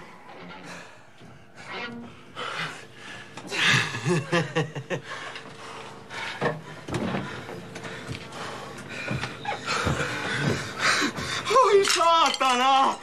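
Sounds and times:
person chuckling: 0:03.5 - 0:05.2.

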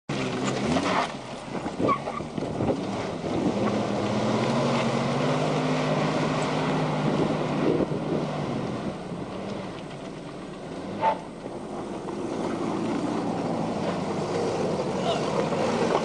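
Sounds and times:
car engine running at raised revs: 0:00.1 - 0:16.0
wind buffeting microphone: 0:01.5 - 0:05.2, 0:06.2 - 0:09.4.

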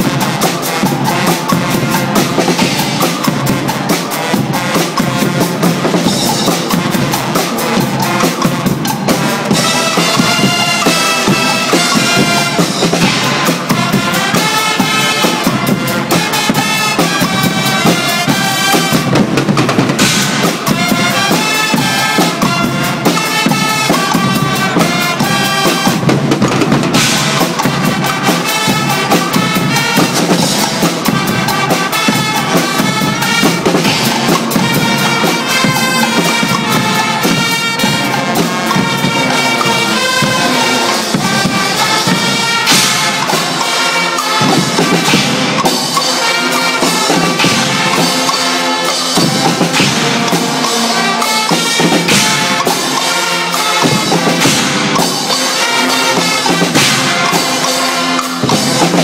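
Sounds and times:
brass instruments playing loudly: 0:00.0 - 0:59.0
drum kit and cymbals: 0:00.0 - 0:59.0.

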